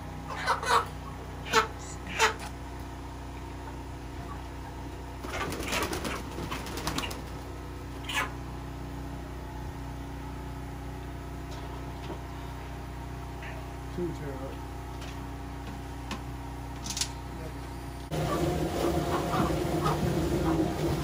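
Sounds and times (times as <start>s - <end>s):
steady low hum: 0.0s - 21.0s
chicken flapping wings: 5.2s - 7.5s.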